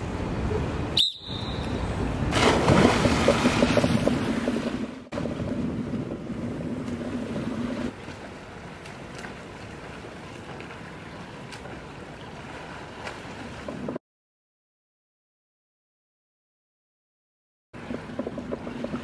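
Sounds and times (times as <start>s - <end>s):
swimmer splashing: 1.5s - 13.8s.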